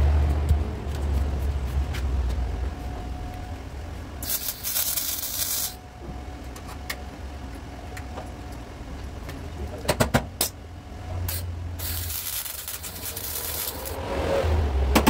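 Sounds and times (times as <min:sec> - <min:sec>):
steady low hum: 0:00.0 - 0:15.0
welding arc hissing and crackling: 0:04.2 - 0:05.8, 0:11.3 - 0:14.0.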